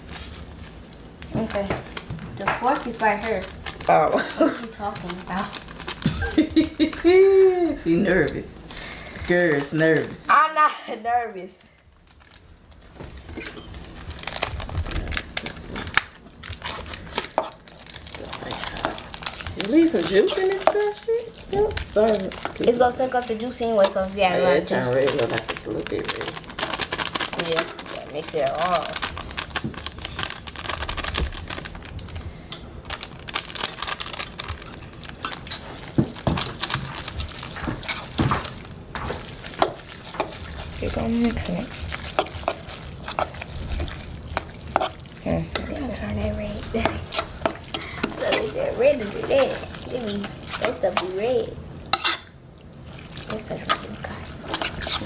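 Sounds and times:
plastic packets crinkling: 0.0s - 10.4s, 11.6s - 55.0s
utensil scraping metal pot: 18.2s - 25.4s, 34.6s - 38.4s, 39.0s - 55.0s.

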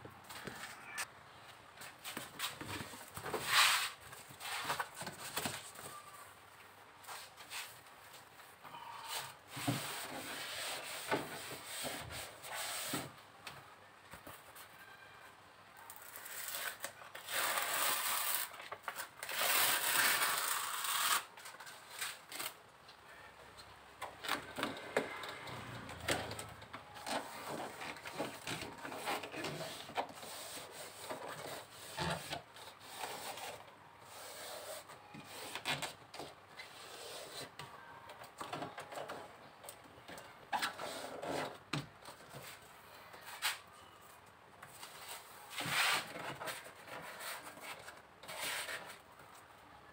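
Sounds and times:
foil insulation crinkling: 15.9s - 22.6s.

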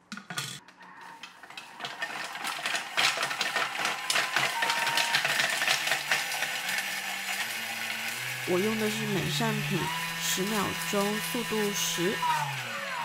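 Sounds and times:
blender grinding sugar: 0.9s - 13.0s.

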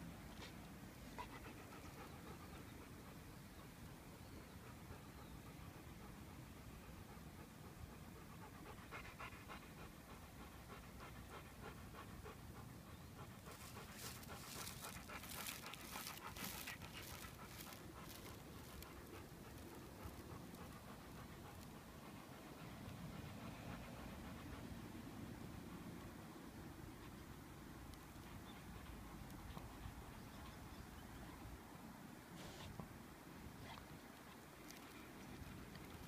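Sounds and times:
dog panting: 0.3s - 3.7s, 4.6s - 26.0s, 28.0s - 31.4s.

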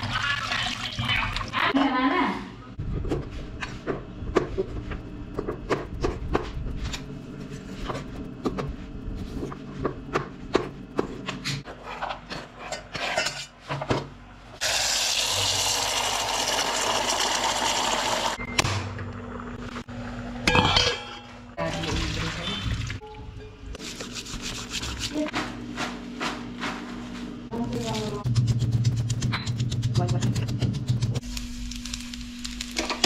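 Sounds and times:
water running into pot: 0.0s - 1.6s, 14.6s - 18.4s.

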